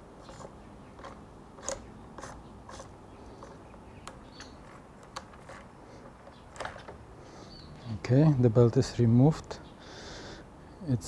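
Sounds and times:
drive belt clicks and scrapes: 0.2s - 7.0s.

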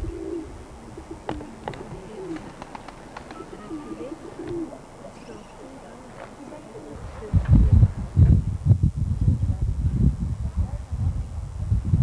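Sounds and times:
doves cooing: 0.0s - 7.6s.

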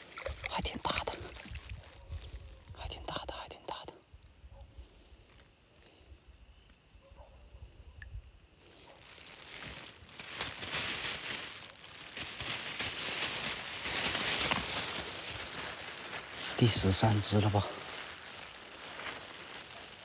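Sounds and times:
insects trilling: 0.0s - 20.0s
loud rustling hiss: 8.5s - 20.0s.

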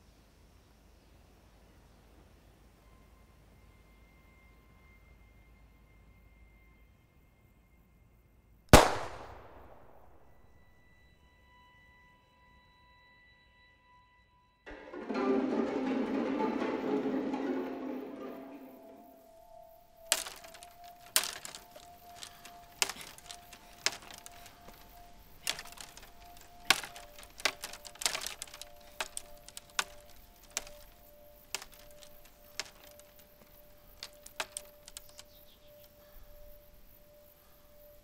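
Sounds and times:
twigs snapping underfoot: 20.0s - 36.0s.

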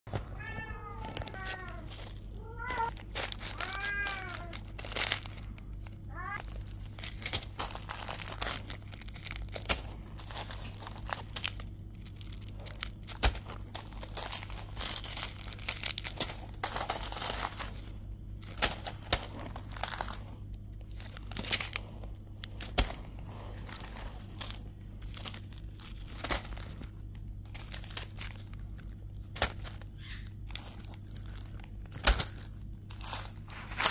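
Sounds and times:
plastic packaging crinkling: 0.1s - 33.9s
steady low hum: 0.1s - 33.9s
cat meowing: 0.3s - 4.6s, 6.1s - 6.4s.

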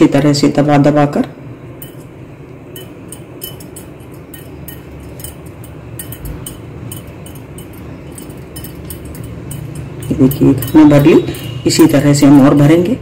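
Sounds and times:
low steady hum: 0.0s - 13.0s
spoon scraping china bowl: 2.8s - 12.7s.

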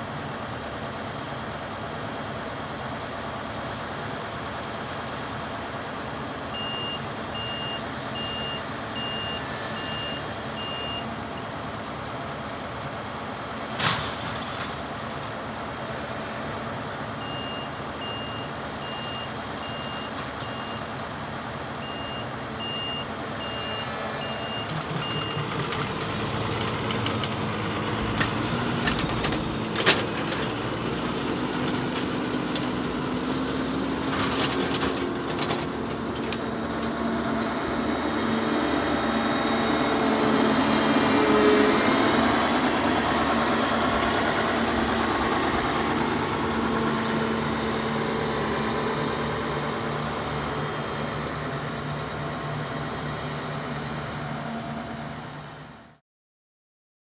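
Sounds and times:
diesel engine running: 0.0s - 56.0s
reversing alarm beeping: 6.6s - 11.1s, 17.2s - 20.9s, 21.8s - 25.4s.

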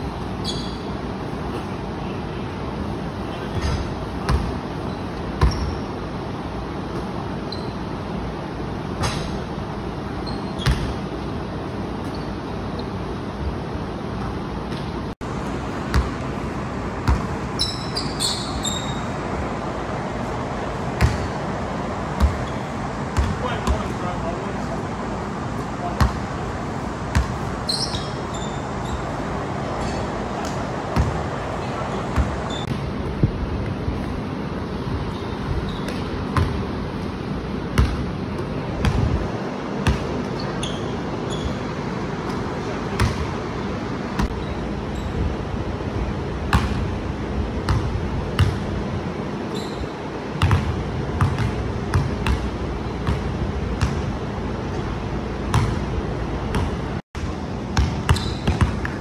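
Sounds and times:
sneaker squeaks: 0.0s - 2.2s, 3.3s - 6.0s, 6.9s - 8.0s, 10.2s - 11.1s, 12.0s - 13.1s, 17.0s - 19.3s, 20.9s - 21.5s, 22.2s - 23.9s, 27.1s - 32.8s, 35.0s - 36.6s, 39.8s - 43.3s, 44.2s - 45.3s, 49.4s - 54.0s, 57.8s - 59.0s
basketball bouncing on wooden floor: 21.0s - 21.3s, 50.4s - 54.0s, 57.8s - 59.0s.

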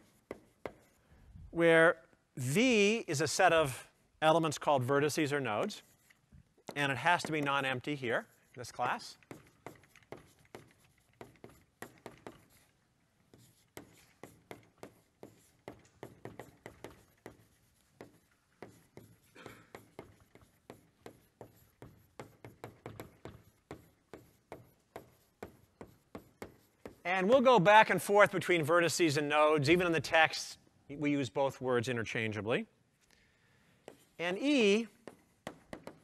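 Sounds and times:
chalk tapping and scratching: 0.0s - 1.1s, 3.2s - 28.2s, 33.8s - 36.0s.

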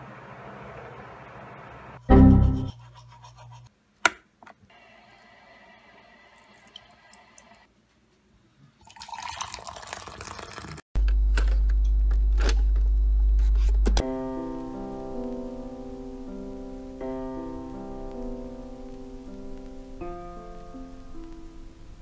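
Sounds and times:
liquid poured into a mug: 5.9s - 7.6s, 8.8s - 10.8s
electronic hum with crackles: 11.0s - 14.5s.

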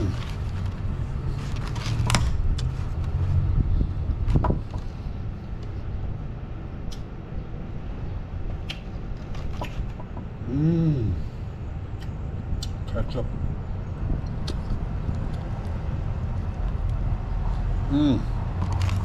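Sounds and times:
passing vehicle rumble: 0.0s - 6.8s, 11.2s - 19.0s.

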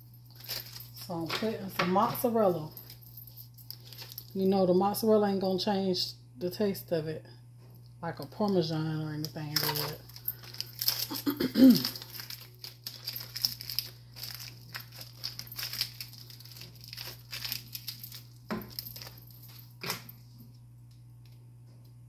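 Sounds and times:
plastic wrapper crinkling and tearing: 0.3s - 1.5s, 3.6s - 4.4s, 9.3s - 19.6s.

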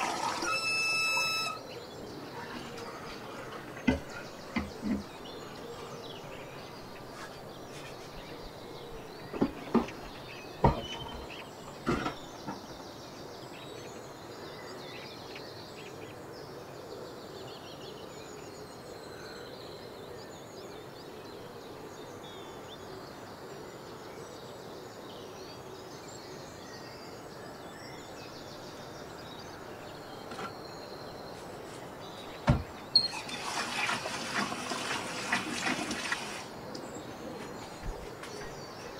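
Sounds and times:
water rushing into kettle: 0.0s - 1.6s, 33.0s - 36.5s
faint birdsong: 0.0s - 38.9s.

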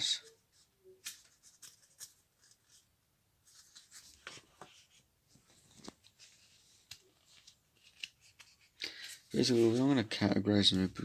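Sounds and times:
paper pages rustling and turning: 0.3s - 11.0s.

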